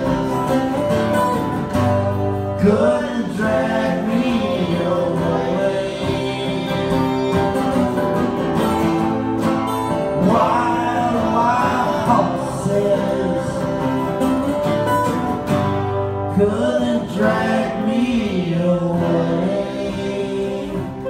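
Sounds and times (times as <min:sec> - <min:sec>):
acoustic guitars strumming: 0:00.0 - 0:21.0
person singing: 0:02.5 - 0:07.8, 0:10.2 - 0:14.3, 0:16.3 - 0:21.0.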